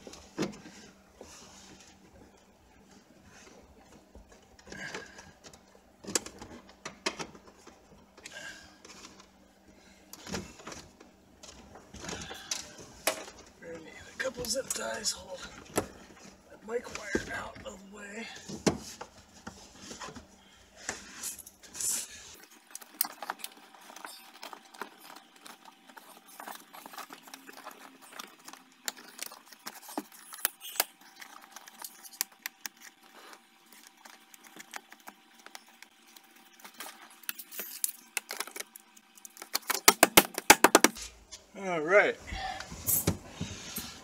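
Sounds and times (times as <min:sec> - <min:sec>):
wiring rustling: 0:18.4 - 0:41.4.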